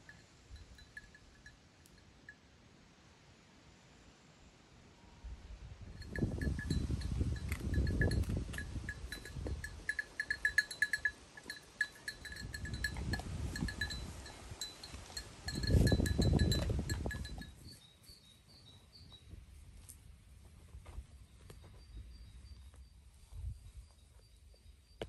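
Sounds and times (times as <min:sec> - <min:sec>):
neck bells clinking: 0:00.0 - 0:02.1, 0:06.0 - 0:17.8.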